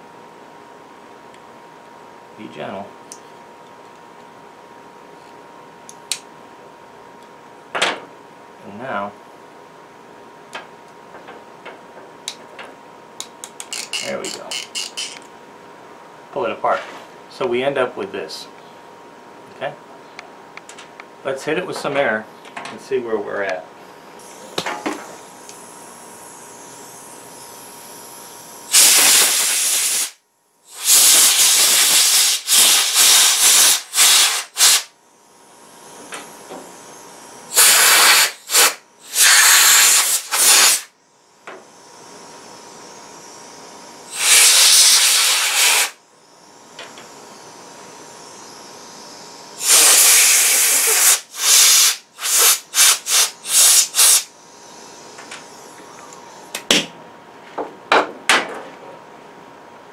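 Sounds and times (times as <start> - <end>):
compressed air blasts hissing: 28.7 - 34.9, 35.9 - 40.9, 41.7 - 46.0, 47.1 - 55.9.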